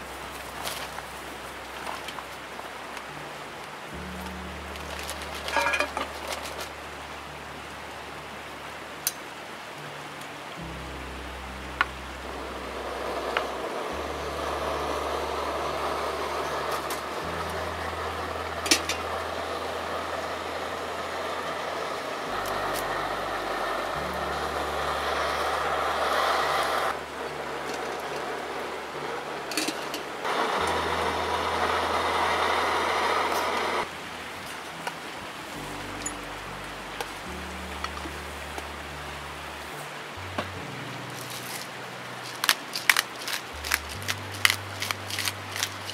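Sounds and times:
soft music with low notes: 0:00.0 - 0:45.9
metal utensils clicking: 0:05.3 - 0:06.7, 0:18.6 - 0:19.2, 0:29.5 - 0:30.1, 0:41.2 - 0:45.9
gas stove burner hissing: 0:12.7 - 0:33.9.

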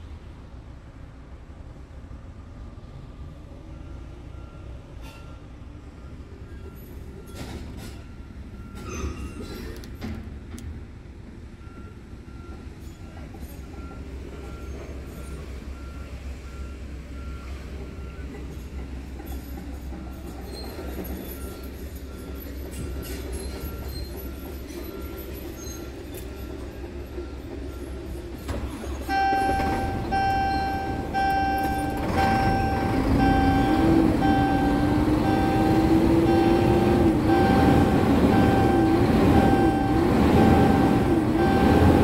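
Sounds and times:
diesel truck engine idling: 0:29.1 - 0:42.0
faint repeating beep: 0:29.1 - 0:42.0
loud warning beep: 0:29.1 - 0:42.0.

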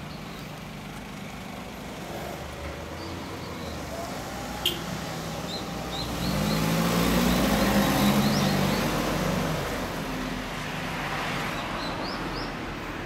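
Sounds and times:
small birds chirping: 0:00.0 - 0:00.6, 0:02.9 - 0:09.1, 0:11.4 - 0:12.6
traffic noise: 0:00.0 - 0:13.0
vehicle driving past: 0:03.2 - 0:12.5.

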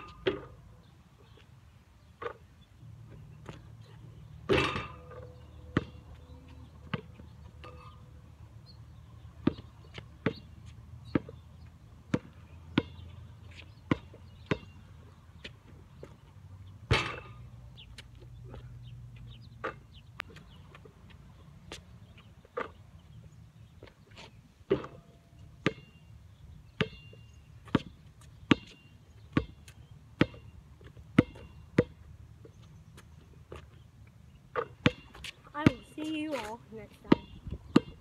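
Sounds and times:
ball hitting backboard and rim: 0:04.4 - 0:06.0, 0:09.4 - 0:10.4, 0:12.1 - 0:13.0, 0:13.9 - 0:14.8, 0:16.9 - 0:17.5, 0:24.7 - 0:26.0, 0:28.5 - 0:28.8, 0:29.4 - 0:29.6, 0:30.2 - 0:30.5, 0:31.2 - 0:32.0, 0:34.6 - 0:35.9
basketball bouncing: 0:04.4 - 0:08.0, 0:09.4 - 0:11.4, 0:12.1 - 0:14.8, 0:16.8 - 0:17.4, 0:24.7 - 0:26.0, 0:26.8 - 0:32.1, 0:34.5 - 0:36.2, 0:37.1 - 0:38.0.

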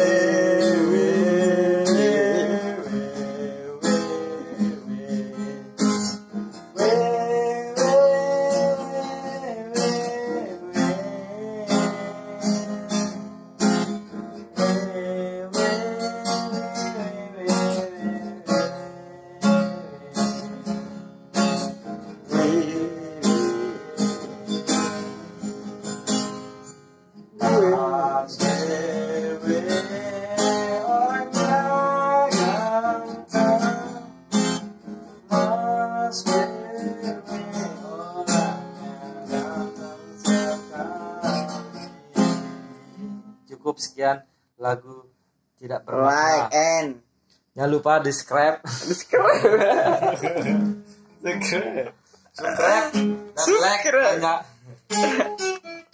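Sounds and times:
man singing: 0:00.0 - 0:06.1, 0:06.7 - 0:13.2, 0:14.5 - 0:20.7, 0:22.2 - 0:25.5, 0:27.3 - 0:34.1, 0:35.2 - 0:43.4, 0:51.2 - 0:54.2, 0:54.9 - 0:55.9
acoustic guitar strumming: 0:00.0 - 0:43.5, 0:49.6 - 0:55.9.

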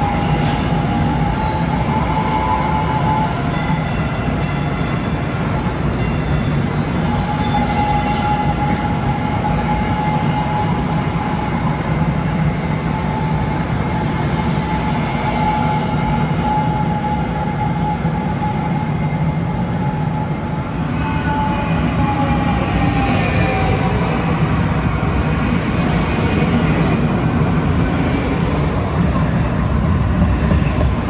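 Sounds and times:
wheels rumbling on rail: 0:00.0 - 0:31.0.

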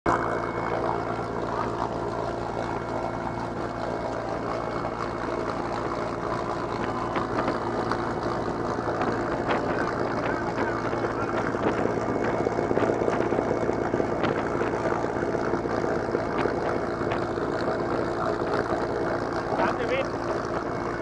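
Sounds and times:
aircraft engine drone: 0:00.1 - 0:21.0.

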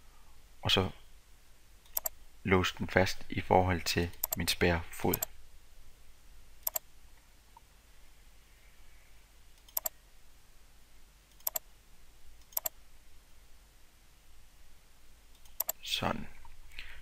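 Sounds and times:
computer mouse clicks: 0:01.8 - 0:02.2, 0:04.1 - 0:04.4, 0:05.1 - 0:05.3, 0:06.6 - 0:06.8, 0:09.6 - 0:10.0, 0:11.3 - 0:11.6, 0:12.4 - 0:12.8, 0:15.3 - 0:15.8.

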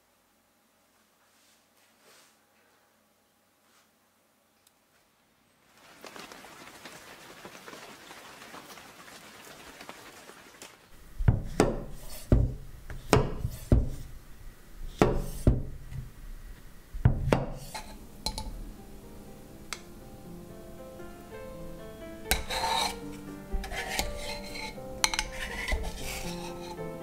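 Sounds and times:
soft steady hiss: 0:00.0 - 0:27.0
knife chopping on wooden board: 0:11.3 - 0:14.0, 0:15.0 - 0:15.8, 0:17.0 - 0:17.7.

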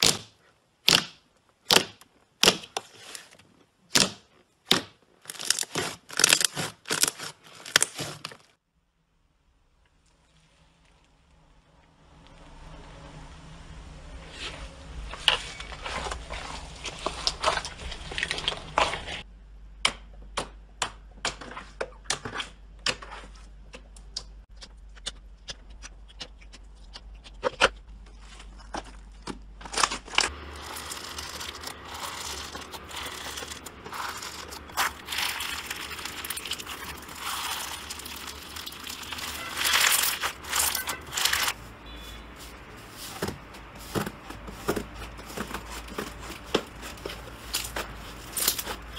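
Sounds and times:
foam bead slime crackling: 0:04.6 - 0:08.6, 0:30.3 - 0:43.2, 0:45.0 - 0:48.9.

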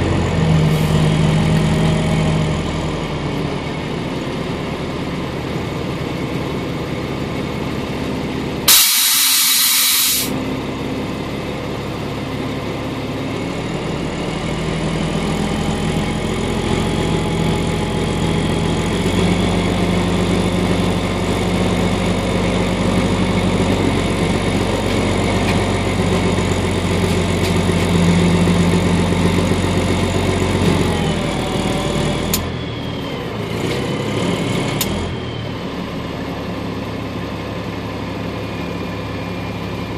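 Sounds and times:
loud hiss: 0:08.7 - 0:10.3
vehicle engine idling: 0:10.3 - 0:33.1
engine revving: 0:13.6 - 0:36.1.

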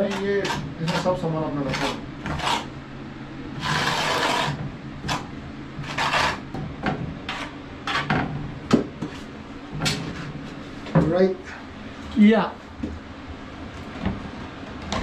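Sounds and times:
trowel scraping tile adhesive: 0:01.7 - 0:02.7, 0:03.6 - 0:05.2, 0:05.8 - 0:06.4.

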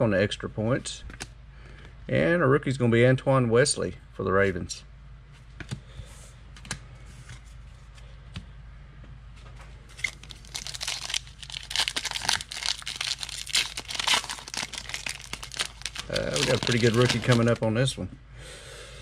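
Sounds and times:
wrapper torn open and crinkled: 0:09.9 - 0:17.7.

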